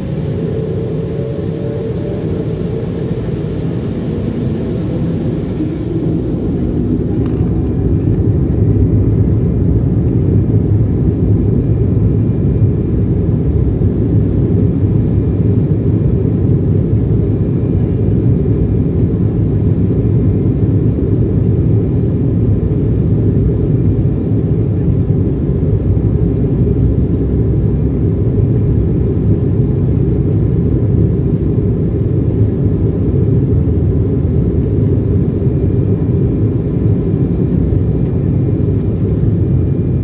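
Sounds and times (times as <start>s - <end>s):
wheels rumbling on runway: 0.0s - 15.3s
jet engines at takeoff: 0.0s - 40.0s.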